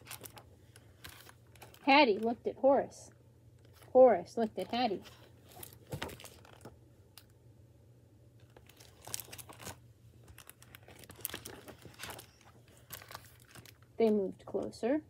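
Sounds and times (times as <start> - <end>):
page turning: 0.0 - 2.4, 4.7 - 6.8, 8.5 - 13.8
plastic book jacket crinkling: 0.0 - 2.4, 3.6 - 6.8, 8.4 - 14.3.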